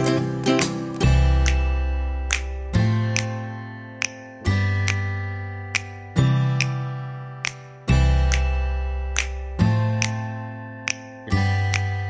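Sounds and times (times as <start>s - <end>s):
instrumental music with deep bass: 0.0s - 12.0s
light percussion ticks: 5.7s - 10.2s.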